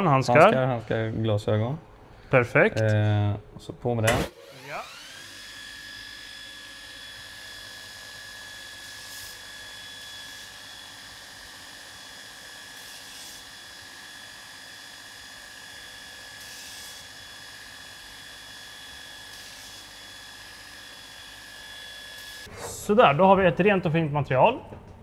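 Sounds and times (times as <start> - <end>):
electric grinder whining: 4.3 - 22.5.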